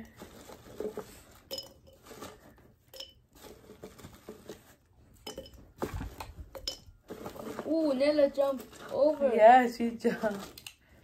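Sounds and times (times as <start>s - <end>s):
candies clinking into glass jar: 0.0s - 3.6s, 5.2s - 5.8s, 6.4s - 10.8s.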